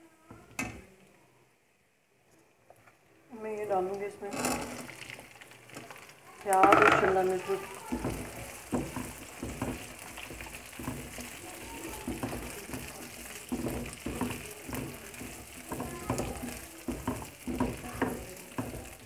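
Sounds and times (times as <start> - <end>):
vegetables sizzling in oil: 3.4 - 19.0
spatula scraping and tapping pan: 6.5 - 19.0.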